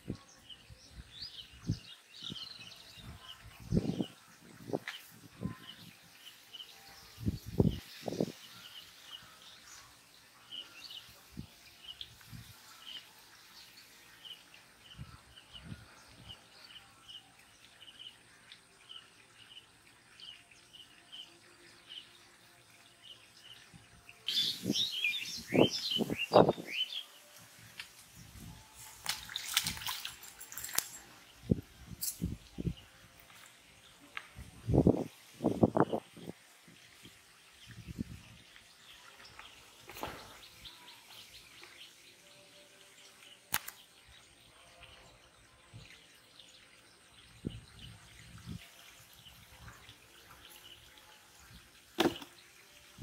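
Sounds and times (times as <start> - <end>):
bird chirps: 24.3 - 27.1
warbling bird calls: 24.3 - 27.1.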